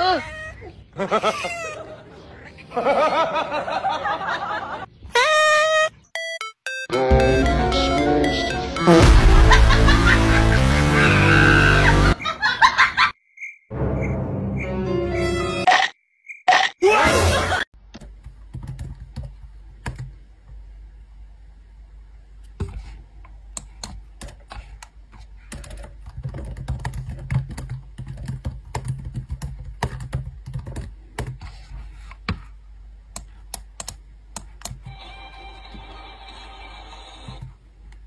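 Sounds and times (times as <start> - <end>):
low background hum: 17.8 - 38.0
laptop keyboard typing: 18.0 - 20.1, 23.6 - 24.8, 25.5 - 31.4, 33.1 - 35.0.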